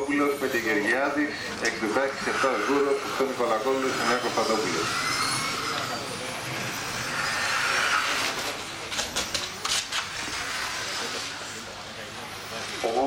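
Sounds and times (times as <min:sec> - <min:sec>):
model racing car motors: 0:00.0 - 0:13.0
rising motor whine: 0:01.8 - 0:08.5.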